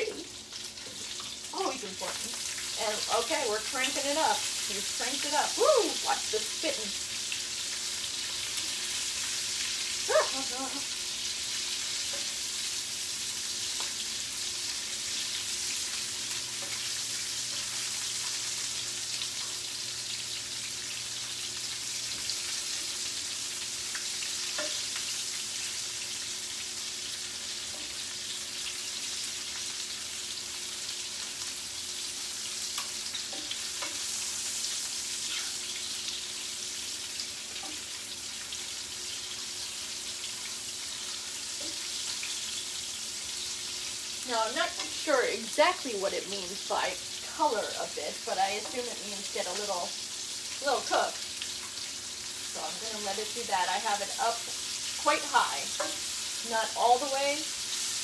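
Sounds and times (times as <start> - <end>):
food sizzling in a pan: 0.0 - 58.0
spatula scraping a pan: 54.0 - 56.4.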